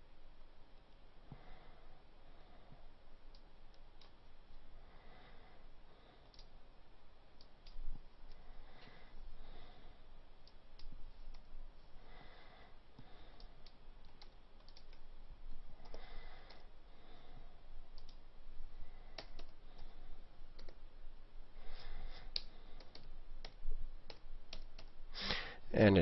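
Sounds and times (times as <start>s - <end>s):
mouse and keyboard clicks: 13.0s - 15.0s, 19.1s - 19.9s, 20.6s - 20.8s, 22.3s - 25.0s.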